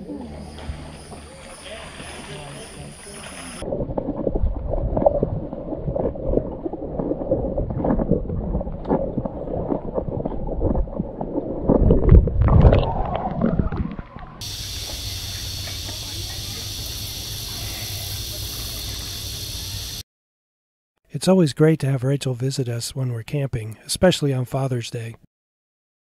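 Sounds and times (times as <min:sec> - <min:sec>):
underwater rumbling and gurgling: 0:00.0 - 0:20.0
underwater clicks and knocks: 0:03.6 - 0:15.0
open-air hiss: 0:14.4 - 0:20.0.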